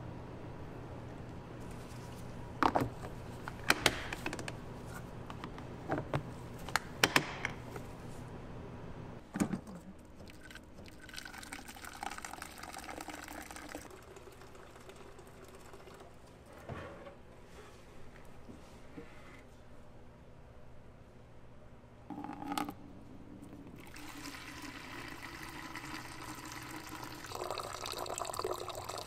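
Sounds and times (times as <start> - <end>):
water pouring into plastic pitcher: 10.2 - 16.4, 23.8 - 29.0.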